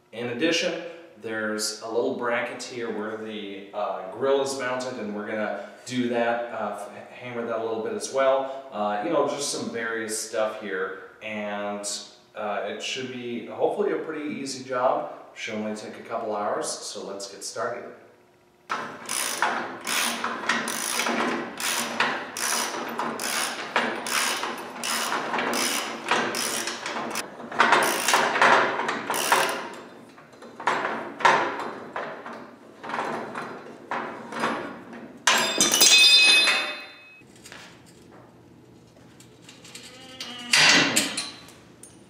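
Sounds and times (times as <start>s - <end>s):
ratchet wrench clicking: 19.1s - 27.2s, 29.1s - 29.6s.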